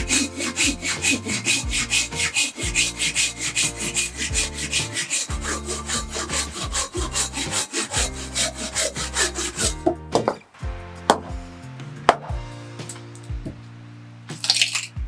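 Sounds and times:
hand saw cutting wood: 0.0s - 10.4s.

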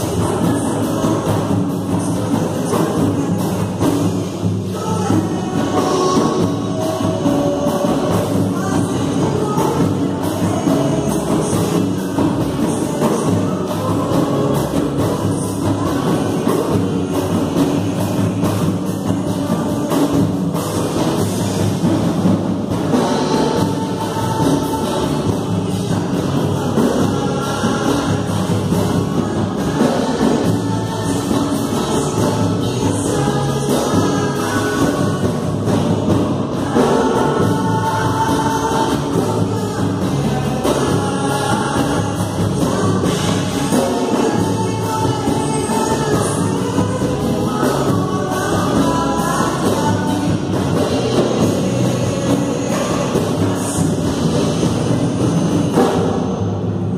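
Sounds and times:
voices singing together: 0.0s - 56.6s
worship band playing: 0.0s - 56.9s.

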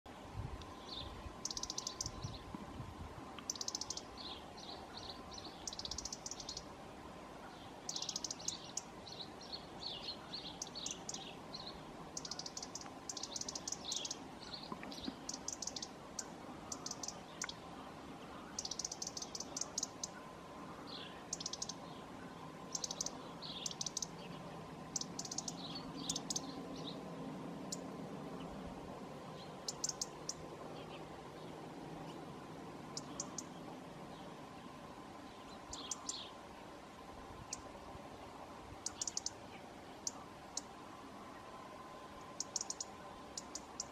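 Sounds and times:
bird twittering: 0.9s - 2.4s, 3.5s - 4.4s, 5.0s - 6.7s, 7.9s - 8.9s, 10.0s - 17.6s, 18.5s - 20.2s, 21.0s - 21.8s, 22.7s - 24.3s, 24.9s - 26.9s, 29.6s - 30.4s, 33.0s - 33.5s, 38.8s - 39.4s, 42.4s - 43.9s.

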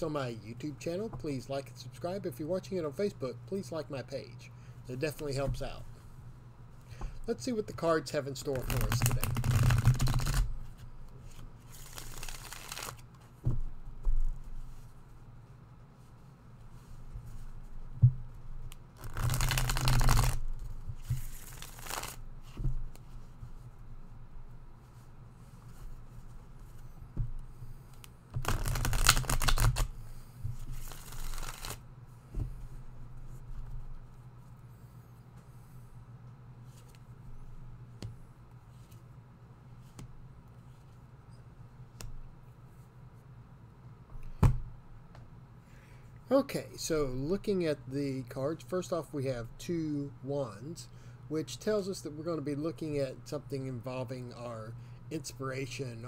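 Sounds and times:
steady low hum: 0.0s - 56.0s
cards riffle-shuffled: 8.4s - 13.3s, 19.0s - 22.2s, 27.9s - 31.8s.

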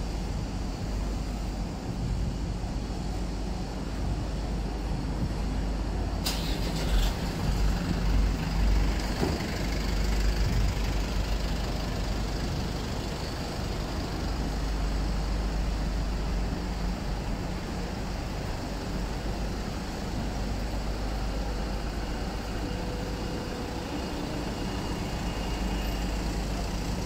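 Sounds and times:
traffic rumble: 0.0s - 27.0s
air brake hiss: 6.2s - 7.3s.

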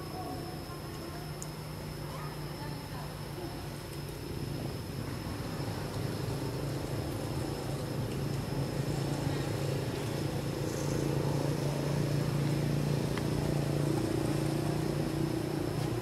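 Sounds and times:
faint high-pitched whine: 0.0s - 16.0s
engine humming: 3.9s - 16.0s.

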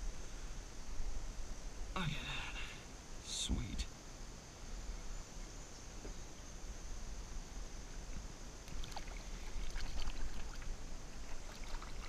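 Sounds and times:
water splashes and drips: 8.7s - 12.0s.

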